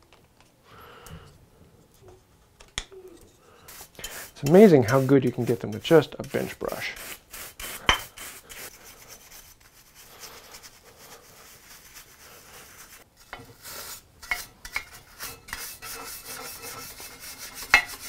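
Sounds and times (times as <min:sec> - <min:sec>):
brush scrubbing metal: 0:03.7 - 0:18.0.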